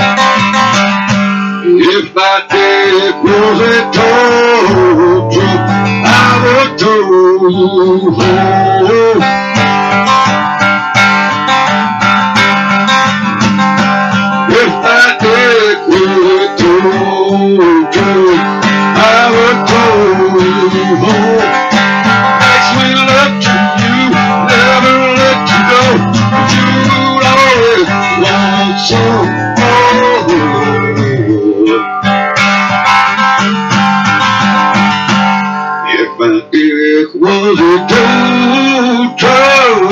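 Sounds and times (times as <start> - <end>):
acoustic guitar strumming: 0.0 - 39.9
man singing: 1.5 - 10.0, 14.4 - 32.0, 35.8 - 39.9.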